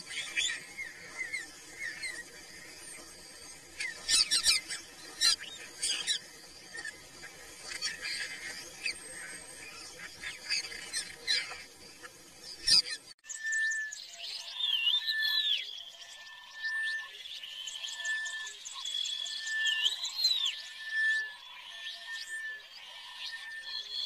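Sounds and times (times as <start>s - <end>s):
high chirping animal calls: 3.7s - 6.9s.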